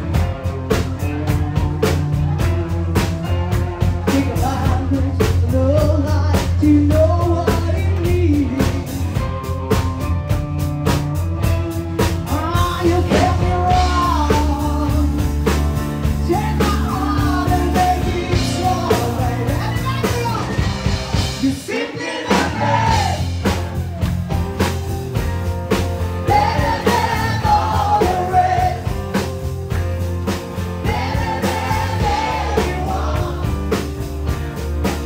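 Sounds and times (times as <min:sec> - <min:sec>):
live rock band playing: 0:00.0 - 0:35.0
person singing: 0:03.9 - 0:09.2, 0:12.3 - 0:15.3, 0:16.2 - 0:20.0.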